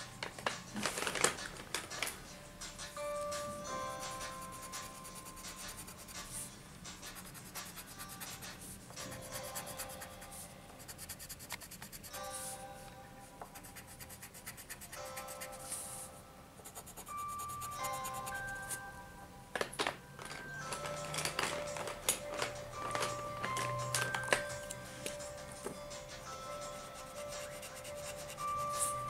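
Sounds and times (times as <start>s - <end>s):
soft background music: 0.0s - 29.0s
pencil scratching on paper: 4.1s - 12.5s, 13.6s - 18.8s, 26.7s - 29.0s.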